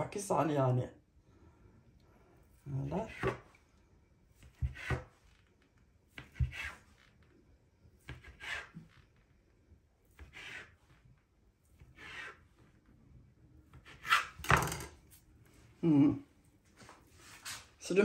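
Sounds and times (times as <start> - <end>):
knife scraping through dough: 4.3 - 5.4, 6.1 - 7.2, 8.0 - 9.1, 10.0 - 12.6, 13.7 - 14.5.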